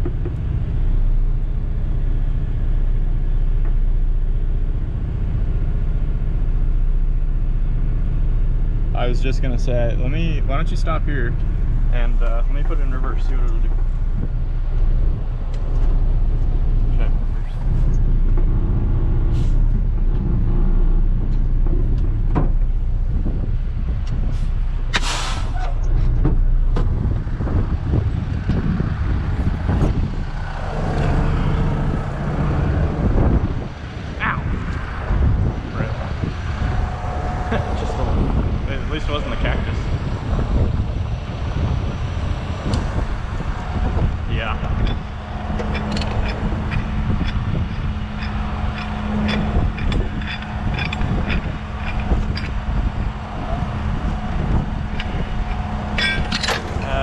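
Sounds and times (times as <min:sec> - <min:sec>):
truck diesel engine idling: 0:00.0 - 0:57.0
knocks and rustles of climbing: 0:12.6 - 0:33.8, 0:40.2 - 0:57.0
metal chain and hook clinking: 0:44.6 - 0:57.0.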